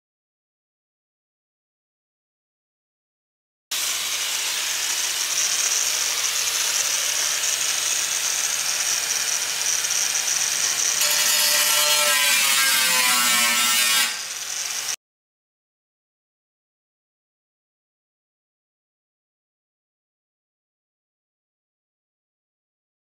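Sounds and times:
angle grinder cutting steel: 3.7s - 15.0s.

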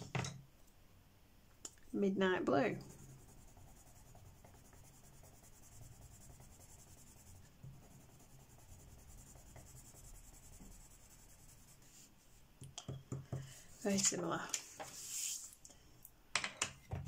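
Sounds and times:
coloured pencil scratching on paper: 2.7s - 12.2s.

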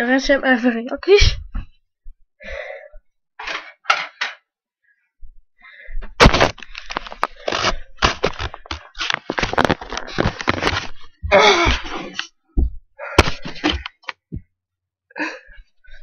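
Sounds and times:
objects clicking and knocking: 6.2s - 11.1s.

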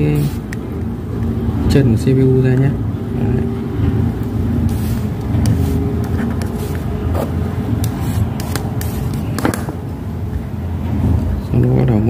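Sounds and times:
steady low rumble: 0.0s - 12.0s
hand tools clicking and tapping: 5.2s - 9.8s.

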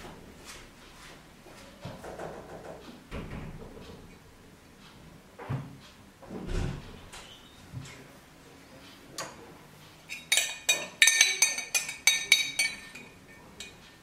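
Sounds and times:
kitchenware clinking: 10.1s - 14.0s.

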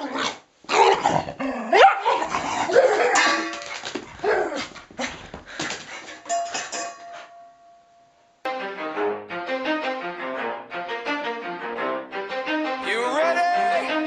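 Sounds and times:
dog barking and yipping: 1.7s - 4.8s.

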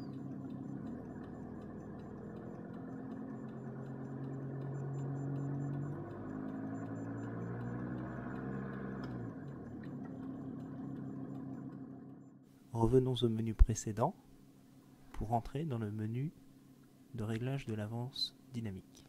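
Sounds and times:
diesel engine revving: 0.0s - 12.4s.

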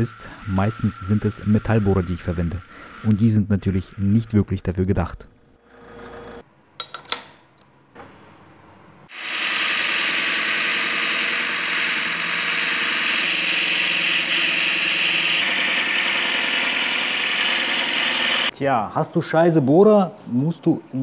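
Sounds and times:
drill boring into wood: 0.0s - 4.3s, 9.1s - 18.5s.

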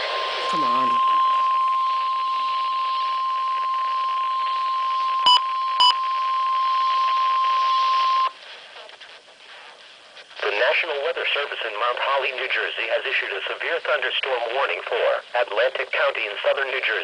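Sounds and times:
steady radio alarm tone: 0.0s - 8.4s
radio static hiss: 0.0s - 17.0s
short button beeps: 5.3s - 5.9s.

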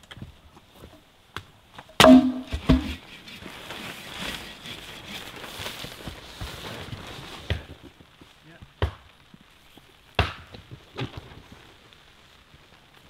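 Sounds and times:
steady hiss: 0.0s - 13.0s
firewood knocking on stump: 2.0s - 3.0s.

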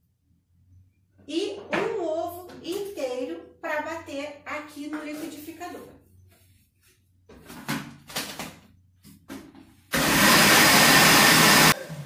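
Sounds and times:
blender motor running: 9.9s - 12.0s.

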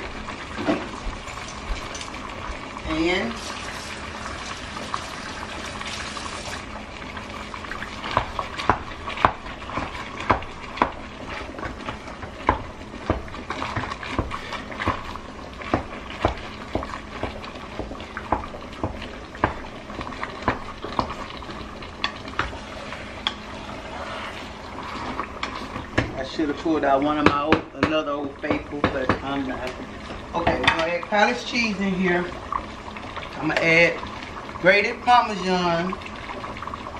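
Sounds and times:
tap running: 4.2s - 34.6s
utensil scraping a pot: 22.0s - 26.4s.

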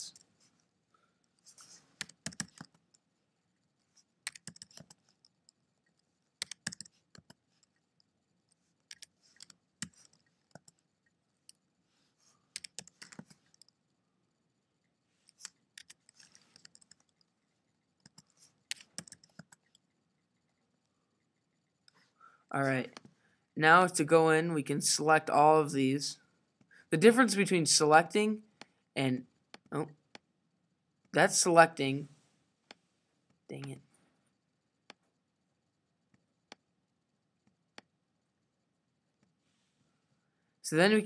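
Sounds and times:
typing on computer keyboard: 2.0s - 3.0s, 4.2s - 7.8s, 8.9s - 10.8s, 12.5s - 13.8s, 15.3s - 17.3s, 18.0s - 19.9s.

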